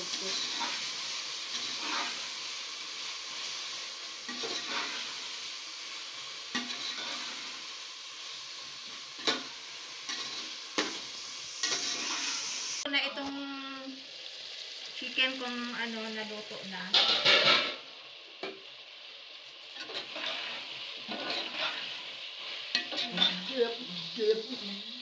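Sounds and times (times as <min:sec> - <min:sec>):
metal spoon stirring and scraping: 0:00.0 - 0:02.4, 0:03.4 - 0:05.2, 0:06.5 - 0:07.6, 0:08.8 - 0:12.7, 0:19.8 - 0:24.6
chicken sizzling in a pot: 0:00.0 - 0:25.0.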